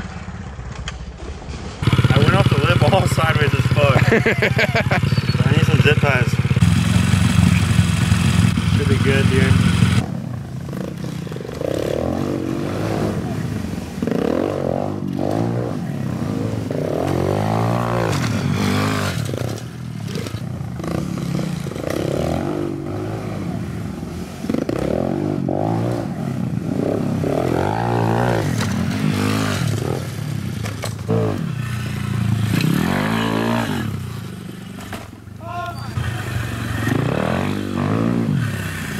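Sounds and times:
pit bike engines revving: 0.0 - 38.9.

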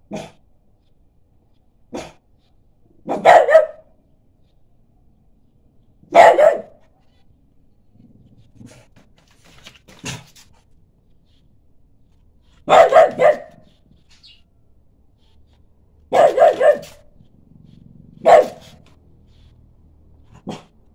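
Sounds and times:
dog barking: 0.1 - 0.4, 1.9 - 2.2, 3.0 - 4.0, 6.1 - 6.9, 12.6 - 13.8, 16.1 - 17.2, 18.2 - 18.9, 20.3 - 20.8.

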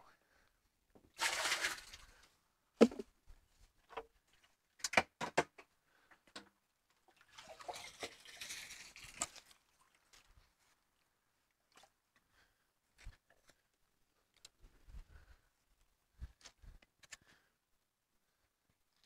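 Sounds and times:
plastic lid knocking: 2.8 - 3.0.

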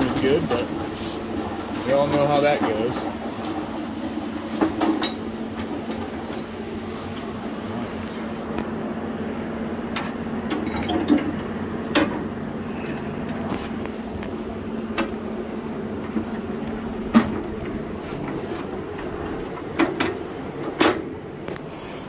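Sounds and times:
steady hum: 0.0 - 22.0
metal clanks and knocks: 1.4 - 6.5, 10.0 - 12.3, 16.0 - 21.1.

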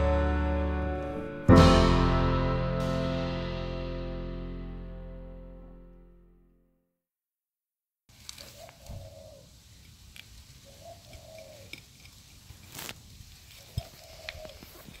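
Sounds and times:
dove cooing: 8.4 - 9.5, 10.6 - 11.8, 13.6 - 14.8.

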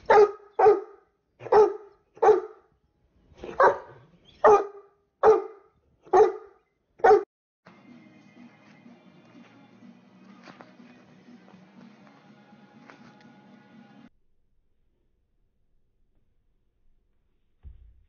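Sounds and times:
large dog barking: 0.0 - 2.7, 3.4 - 7.3.

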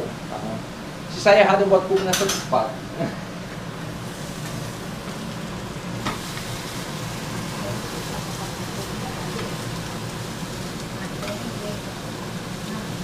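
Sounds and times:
patties sizzling in a frying pan: 3.9 - 13.0.

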